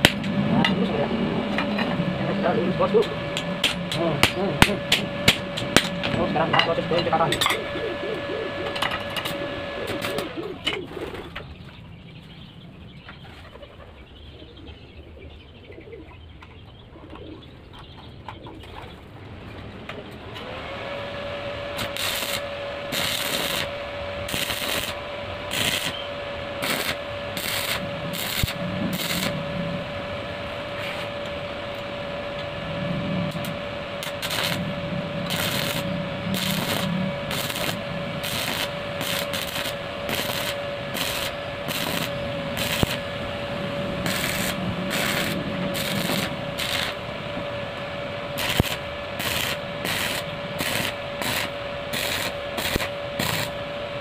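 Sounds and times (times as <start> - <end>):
welding arc crackling: 0.0 - 1.8, 2.4 - 10.4, 21.0 - 32.6, 33.2 - 53.7
steady welding hum: 0.0 - 54.0.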